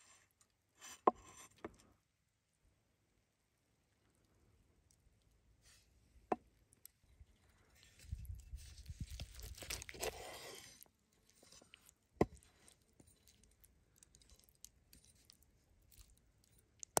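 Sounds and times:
faint small crackles: 6.6s - 17.0s
cleaver crunching through chicken: 7.6s - 17.0s.

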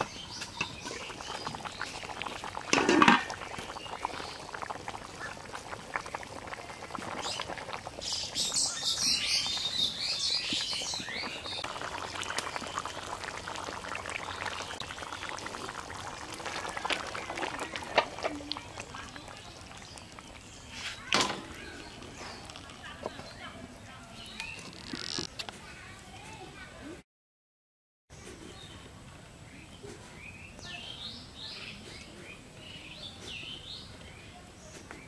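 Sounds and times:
curry bubbling in a pot: 0.0s - 26.1s
metal pot lid clank: 2.7s - 3.3s.

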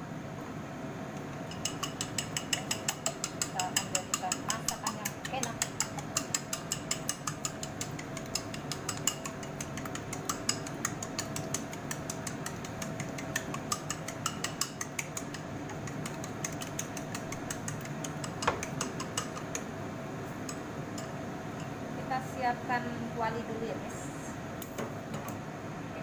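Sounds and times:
chopsticks clicking against bowl: 1.4s - 19.7s.

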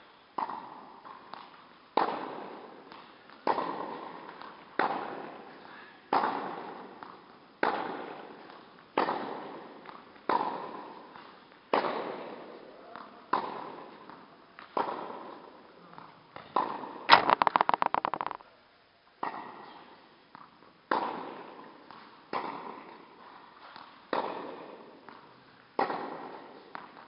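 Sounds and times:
racket hitting tennis ball: 6.1s - 8.4s, 9.0s - 10.9s, 13.3s - 15.4s, 16.4s - 18.4s, 20.4s - 23.0s, 24.1s - 25.2s, 25.8s - 27.0s.

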